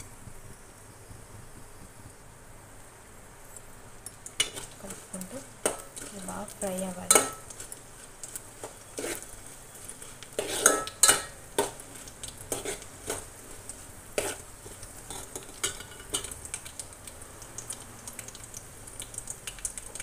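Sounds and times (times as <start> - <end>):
oil sizzling: 0.0 - 20.0
metal spoon scraping a pot: 4.4 - 16.3.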